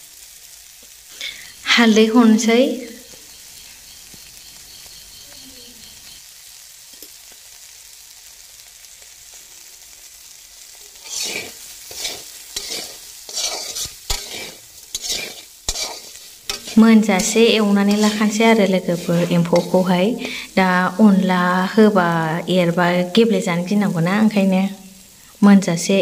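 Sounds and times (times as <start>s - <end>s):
food sizzling in a metal pan: 0.0s - 26.0s
plastic spoon scraping a pan: 11.0s - 20.4s.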